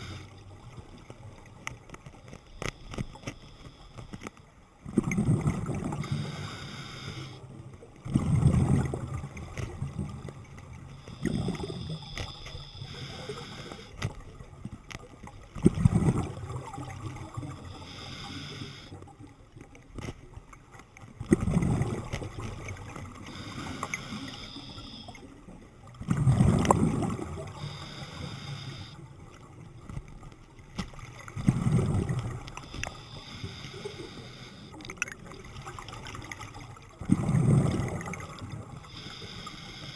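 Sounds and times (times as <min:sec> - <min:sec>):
regulator inhale hiss: 0:00.0 - 0:00.5, 0:02.6 - 0:04.2, 0:06.0 - 0:07.5, 0:11.0 - 0:14.1, 0:17.5 - 0:19.0, 0:23.2 - 0:25.3, 0:27.5 - 0:29.1, 0:32.5 - 0:34.8, 0:38.8 - 0:39.9
exhaled bubbles gurgling: 0:04.8 - 0:19.7, 0:21.1 - 0:39.9.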